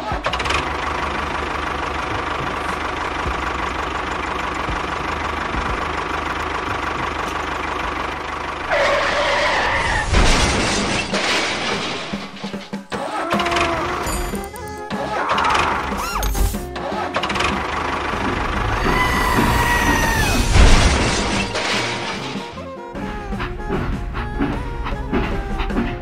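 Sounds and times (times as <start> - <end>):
engine with fast knocking beat: 0.0 - 8.6, 16.8 - 19.6, 23.0 - 26.0.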